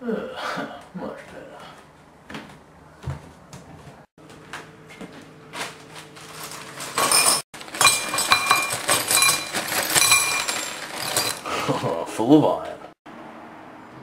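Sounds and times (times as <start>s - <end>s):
metal scraps clattering into bowl: 6.2s - 11.5s.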